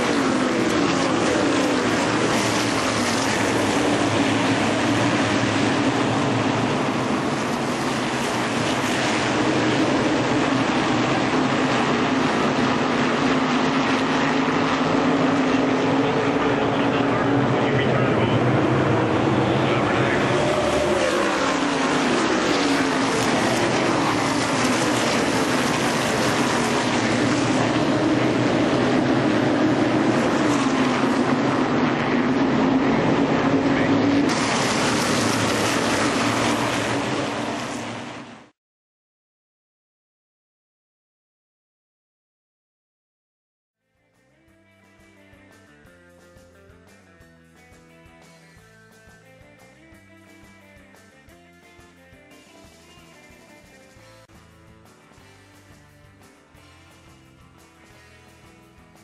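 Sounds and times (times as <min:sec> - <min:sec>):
racing car engines passing: 0:00.0 - 0:38.5.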